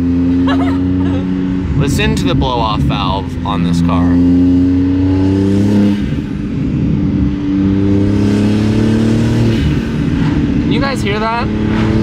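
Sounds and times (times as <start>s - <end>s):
turbocharged car engine accelerating: 0.0s - 12.0s.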